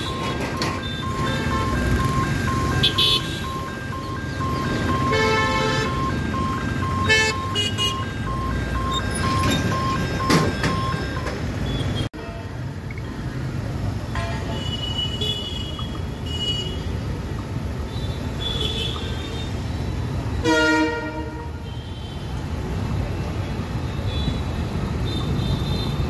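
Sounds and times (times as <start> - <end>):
level-crossing warning beeper: 0.0 - 12.1
traffic noise: 0.0 - 26.0
vehicle horns honking: 2.6 - 3.6, 4.9 - 6.0, 7.0 - 8.2, 20.4 - 22.2.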